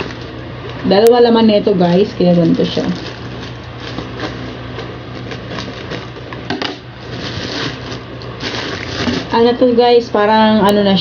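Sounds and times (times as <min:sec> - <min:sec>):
plastic crinkling and rustling: 0:01.6 - 0:06.4, 0:07.0 - 0:09.4.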